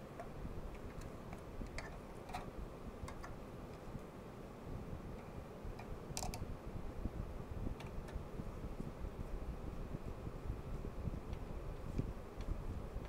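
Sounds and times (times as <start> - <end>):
clicks from plastic connectors: 5.8 - 6.4.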